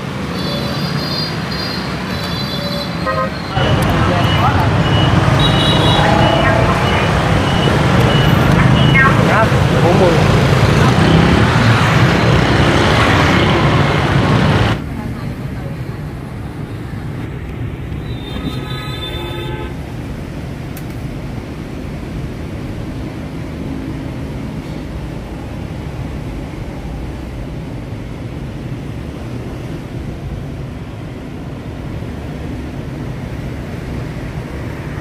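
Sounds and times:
street traffic rumble: 0:00.0 - 0:35.0
vehicle horn: 0:00.4 - 0:03.7, 0:05.3 - 0:06.9, 0:18.1 - 0:19.8.

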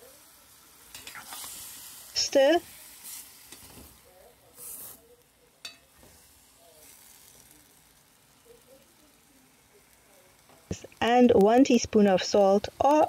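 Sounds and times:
food sizzling in hot oil: 0:00.0 - 0:13.0
spoon scraping pot: 0:00.9 - 0:01.6.

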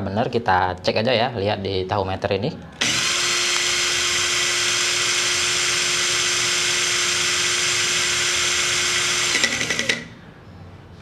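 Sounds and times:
cordless drill whining: 0:02.8 - 0:10.1.

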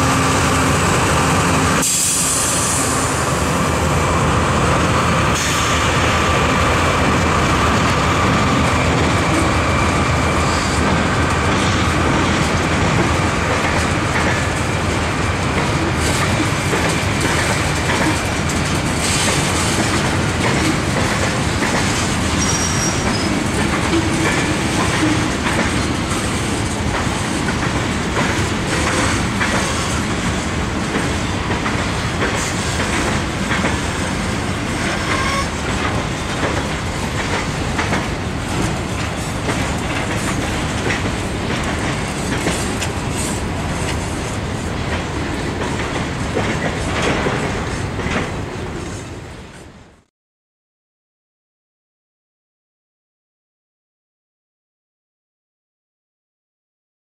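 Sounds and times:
wheels clacking over rail joints: 0:10.9 - 0:48.6.

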